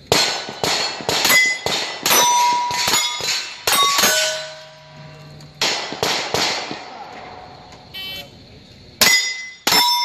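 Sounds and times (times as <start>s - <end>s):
gunshots: 0.0s - 4.7s, 5.6s - 7.6s
steel targets clanging: 0.1s - 7.5s, 9.0s - 10.0s.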